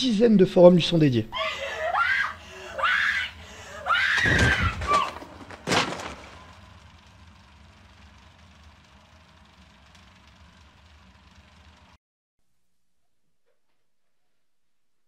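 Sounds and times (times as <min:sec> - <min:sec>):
woman screaming: 0:01.3 - 0:05.4
tape hiss and hum: 0:05.1 - 0:13.2.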